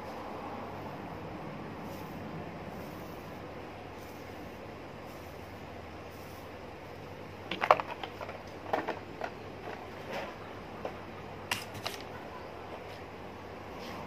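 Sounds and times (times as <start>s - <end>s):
small objects clicking and tapping: 7.5s - 9.9s, 11.5s - 12.1s.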